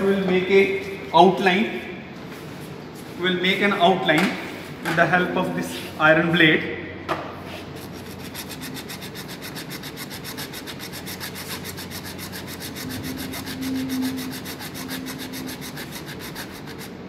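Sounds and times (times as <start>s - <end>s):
low steady hum: 0.0s - 17.0s
blade scraping bone: 7.8s - 17.0s.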